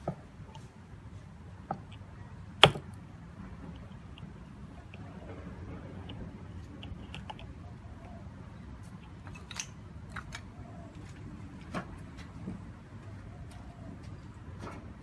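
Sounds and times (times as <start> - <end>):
low background rumble: 0.0 - 11.6.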